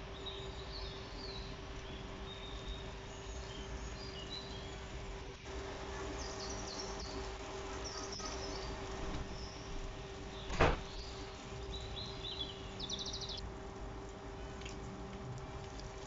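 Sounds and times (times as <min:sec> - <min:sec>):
low steady hum: 0:00.0 - 0:16.0
bird chirps: 0:06.0 - 0:09.7, 0:10.3 - 0:13.4
dough deep-frying in oil: 0:13.4 - 0:16.0.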